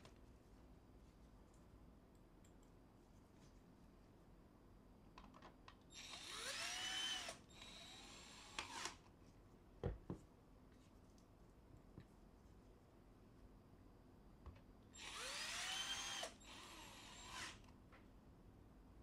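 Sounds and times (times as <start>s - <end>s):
cordless drill driving a screw: 5.9s - 9.0s, 15.0s - 17.7s.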